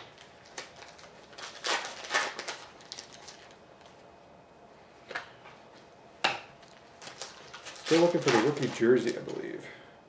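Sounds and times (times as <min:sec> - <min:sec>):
cards rustling and crinkling: 0:00.0 - 0:04.0, 0:06.6 - 0:09.6.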